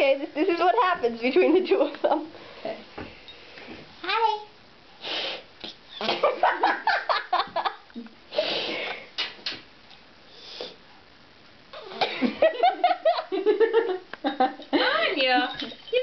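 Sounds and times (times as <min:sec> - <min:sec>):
cat hissing: 0:05.0 - 0:06.3, 0:08.3 - 0:08.9.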